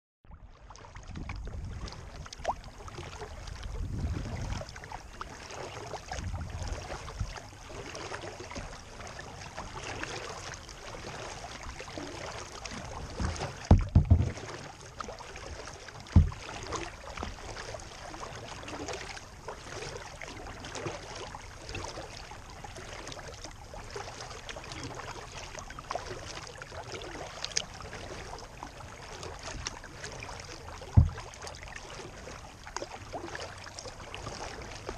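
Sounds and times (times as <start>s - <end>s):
waves lapping against hull: 0.3s - 34.9s
wind on microphone: 1.1s - 2.5s, 3.6s - 4.8s, 6.0s - 7.4s
dull low thumps: 13.2s - 14.6s, 16.0s - 16.8s, 30.9s - 31.4s.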